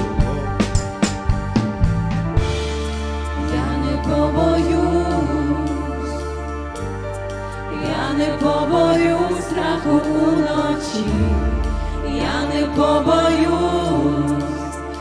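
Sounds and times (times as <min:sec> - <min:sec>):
bass line: 0:00.0 - 0:15.0
keyboards: 0:00.0 - 0:15.0
woman singing lead: 0:03.2 - 0:06.4, 0:07.6 - 0:15.0.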